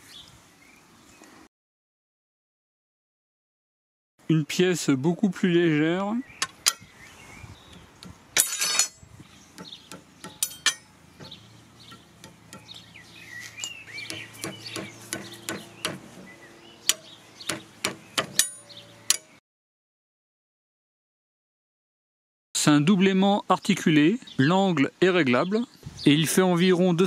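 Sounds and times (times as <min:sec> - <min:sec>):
birds chirping: 0:00.0 - 0:01.5, 0:05.2 - 0:19.4, 0:22.7 - 0:27.0
steel bar clacking on magnets: 0:06.4 - 0:06.9, 0:07.7 - 0:09.0, 0:09.6 - 0:12.8, 0:16.9 - 0:19.3.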